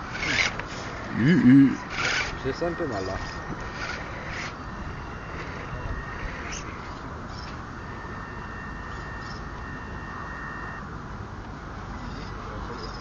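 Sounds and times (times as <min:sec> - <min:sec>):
electric motor whine: 0:00.0 - 0:12.5
wind noise on microphone: 0:01.8 - 0:10.9.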